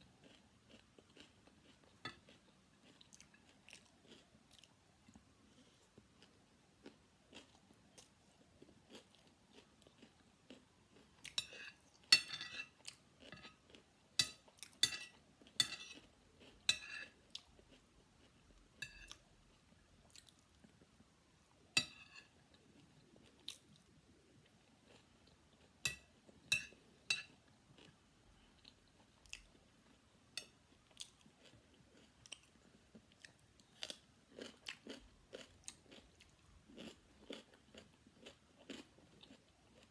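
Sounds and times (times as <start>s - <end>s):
close chewing with soft crunches: 0.0s - 21.0s, 21.8s - 39.9s
metal spoon clinking on plate: 12.1s - 13.5s, 14.2s - 16.0s.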